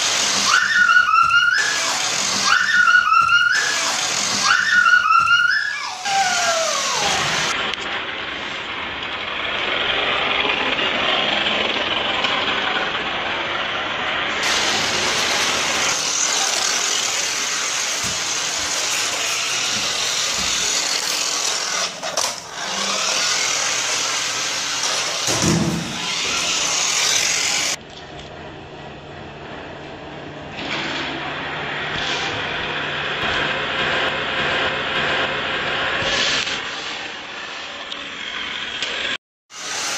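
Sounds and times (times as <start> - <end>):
toy car motor whirring: 0.0 - 7.6, 14.4 - 25.3, 25.9 - 27.8.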